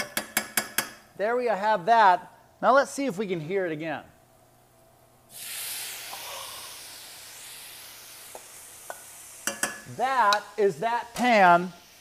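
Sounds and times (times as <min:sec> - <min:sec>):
tomatoes sizzling in a hot pan: 0:05.3 - 0:12.0.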